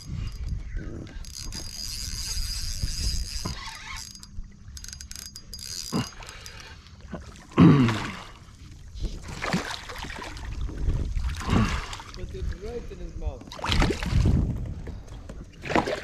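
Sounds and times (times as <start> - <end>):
fishing reel whirring and clicking: 0.0 - 7.1
fish splashing: 9.1 - 12.2.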